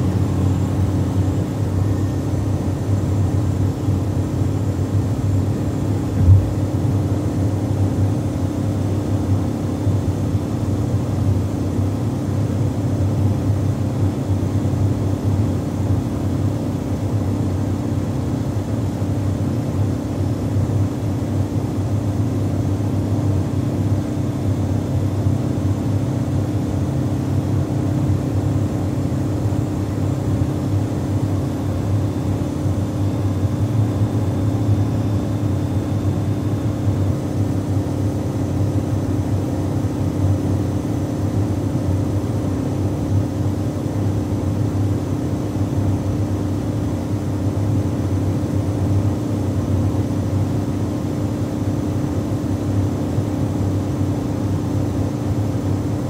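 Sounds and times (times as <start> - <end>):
car engine drone: 0.0 - 7.4.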